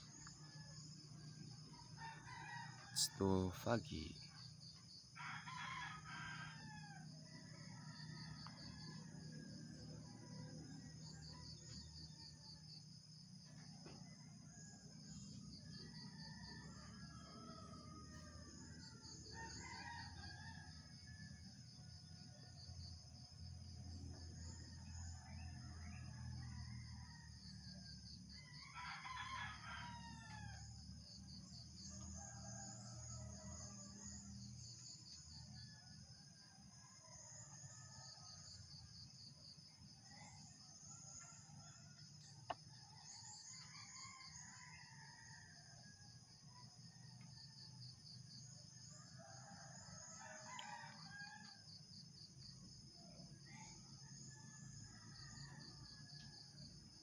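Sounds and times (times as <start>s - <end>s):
pulsing insect trill: 0.0s - 36.2s.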